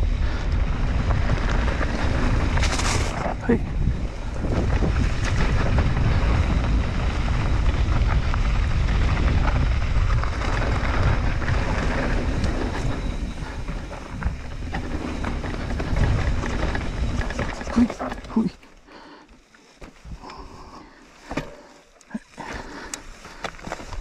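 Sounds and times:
wind buffeting microphone: 0.0s - 18.3s
bike clicks and rattles: 0.0s - 24.0s
tyre noise on dirt: 0.0s - 24.0s.

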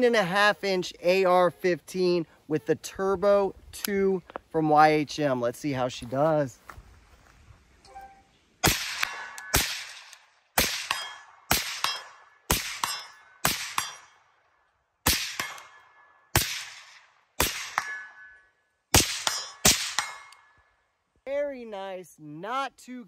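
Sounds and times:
suppressed rifle shots: 8.6s - 14.1s, 15.0s - 18.1s, 18.9s - 20.4s
steel targets ringing: 17.7s - 18.6s.

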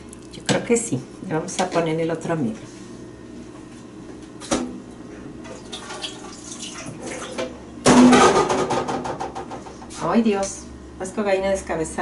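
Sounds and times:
water running from tap: 5.6s - 7.4s.

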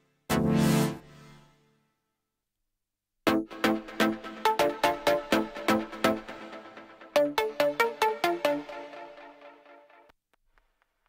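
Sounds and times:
synthesizer pluck chord: 0.3s - 1.6s, 3.3s - 10.0s.

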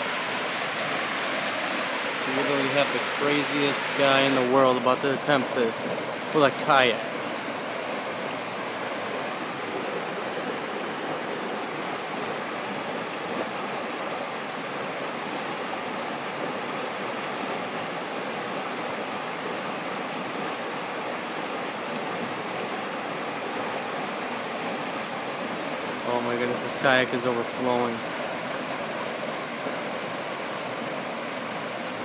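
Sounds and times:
whitewater rushing under bridge: 0.0s - 32.0s.

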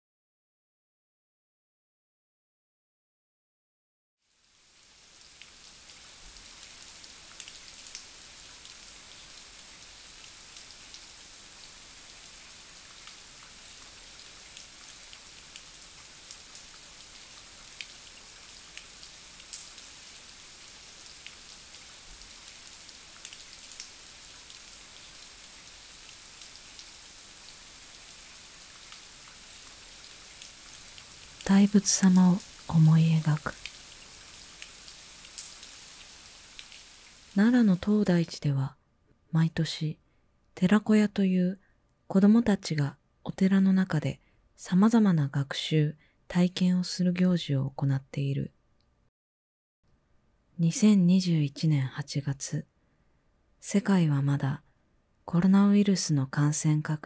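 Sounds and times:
steady rain: 4.2s - 38.0s
continuous high hiss: 4.2s - 38.6s
small drip ticks: 17.7s - 19.9s, 33.5s - 34.0s, 34.6s - 35.8s.

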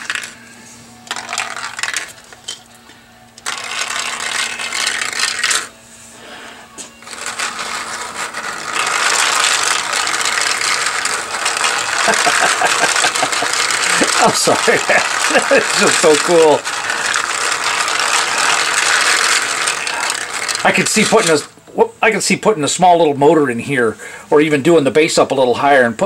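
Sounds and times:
steel balls rattling through marble run: 0.0s - 2.7s, 3.4s - 5.7s, 7.0s - 21.6s.

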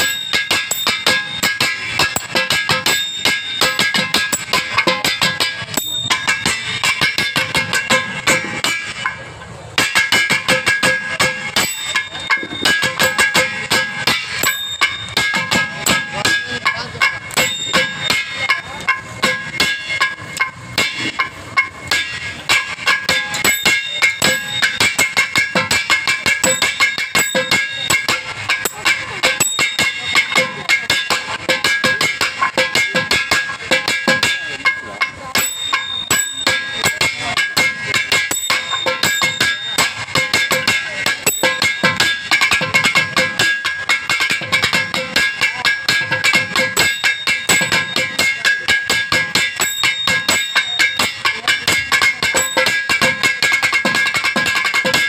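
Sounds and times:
fast hand-drum strokes: 0.0s - 55.0s.

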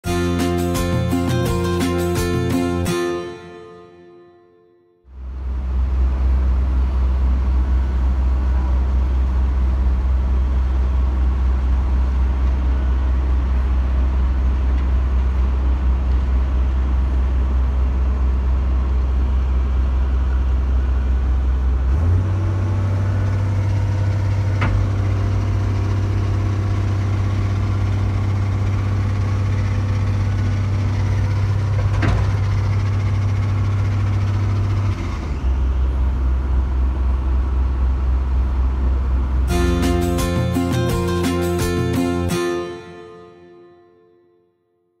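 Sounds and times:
vehicle engine rumble: 5.1s - 40.4s.

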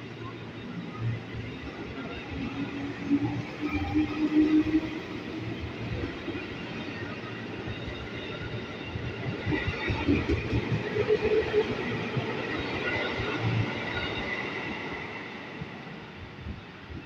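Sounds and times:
train wheels rumbling on rails: 0.2s - 17.0s.

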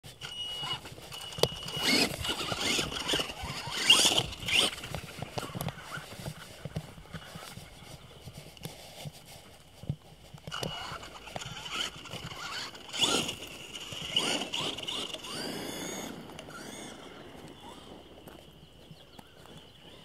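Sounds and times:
toy truck motor whine: 0.2s - 6.0s, 10.5s - 17.9s
tyres scrabbling on gravel: 0.6s - 20.0s.

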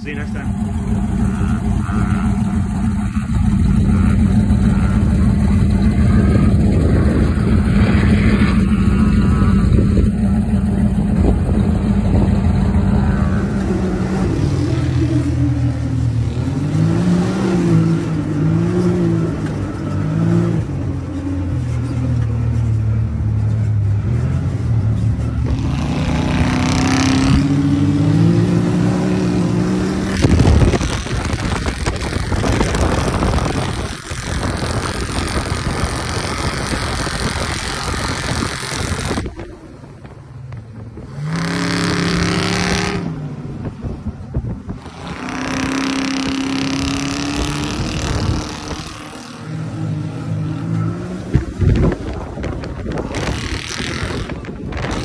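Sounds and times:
off-road vehicle engines revving: 0.0s - 55.0s
tire noise: 0.0s - 55.0s
rushing wind: 0.6s - 55.0s.

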